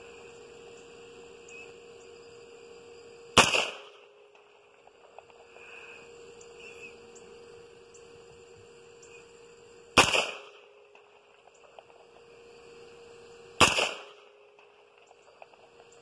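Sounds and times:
faint steady hum: 0.0 - 16.0
rifle shot: 3.4 - 4.1, 10.0 - 11.1, 13.6 - 14.8.

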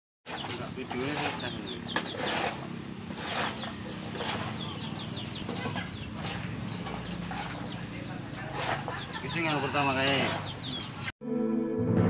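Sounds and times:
birds chirping: 0.2 - 11.1
rake scraping ground: 0.3 - 7.8, 8.4 - 9.4
high bird peeps: 3.4 - 7.9.

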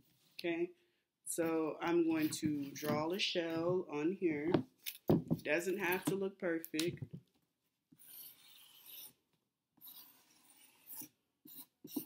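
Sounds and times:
marker drawing on cardboard: 7.9 - 9.2, 9.8 - 12.0.

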